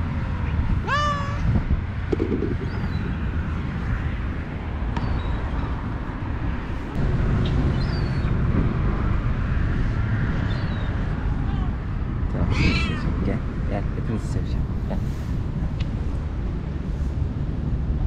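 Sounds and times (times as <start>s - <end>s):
low outdoor rumble: 0.0s - 18.0s
cat meowing: 0.8s - 1.5s, 12.5s - 13.2s.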